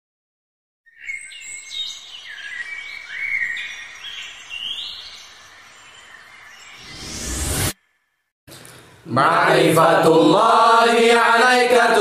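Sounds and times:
birds chirping: 0.9 - 7.2.

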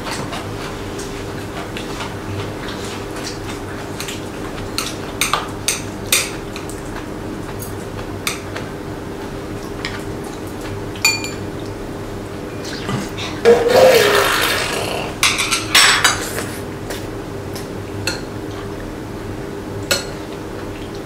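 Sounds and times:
steady low hum: 12.3 - 15.3.

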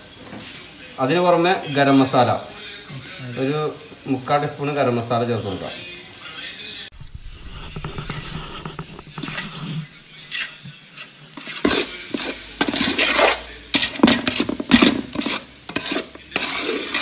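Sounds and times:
light sizzle from pan: 0.0 - 17.0
metal spoon scraping a pot: 7.5 - 17.0.

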